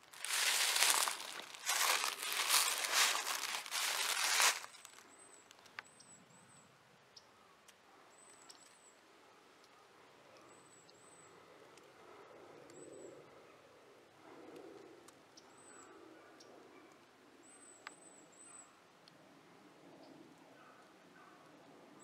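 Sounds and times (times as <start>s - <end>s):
footsteps crunching dry leaves: 0.0s - 5.0s.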